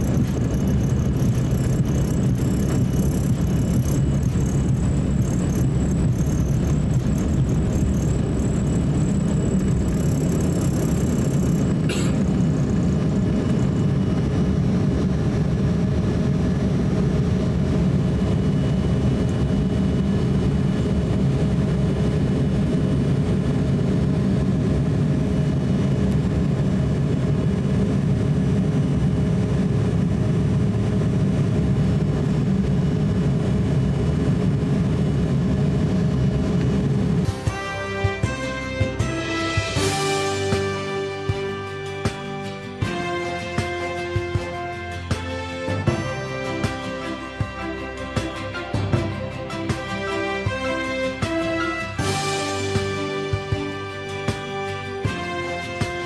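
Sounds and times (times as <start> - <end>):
runway rumble and rattling: 0.0 - 39.2
jet engines at high thrust: 0.0 - 56.0.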